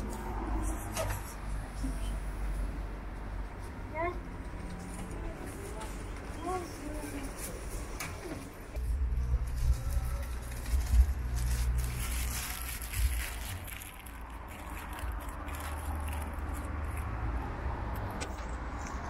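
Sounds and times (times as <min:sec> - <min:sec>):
steady low rumble: 0:08.7 - 0:17.1
cats crunching dry kibble: 0:09.4 - 0:17.2.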